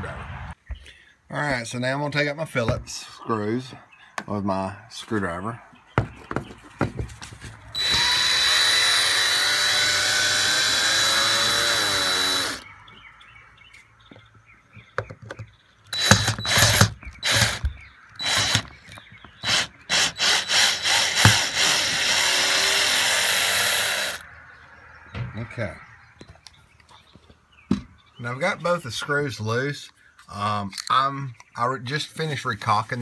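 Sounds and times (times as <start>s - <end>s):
cordless drill whining: 7.8s - 12.7s, 15.9s - 24.2s.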